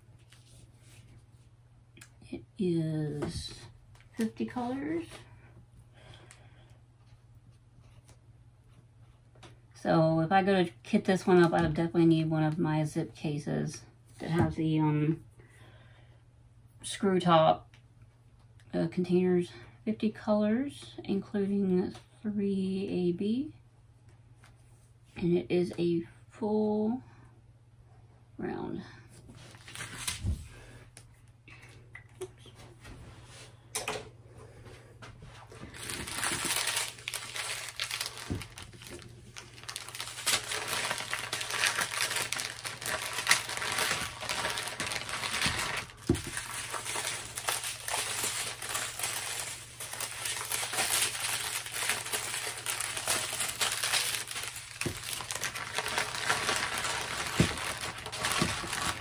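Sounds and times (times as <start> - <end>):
plastic bags crinkling: 35.6 - 59.0.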